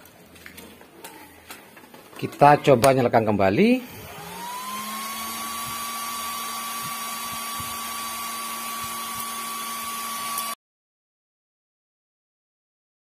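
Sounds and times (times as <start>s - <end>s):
cooling fan whirring: 3.7s - 10.6s.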